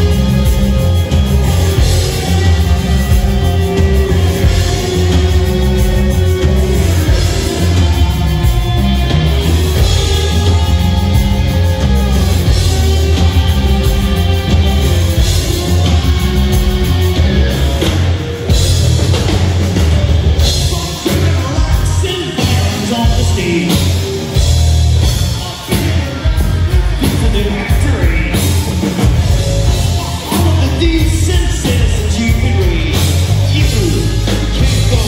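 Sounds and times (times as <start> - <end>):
bass guitar: 0.0 - 35.0
distorted electric guitars: 0.0 - 35.0
drum kit: 0.0 - 35.0
singer's vocals: 20.4 - 24.2, 25.0 - 35.0.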